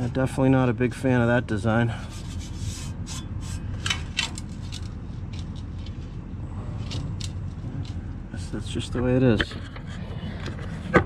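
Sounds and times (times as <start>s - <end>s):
hand scraping steel panels: 1.9s - 6.1s.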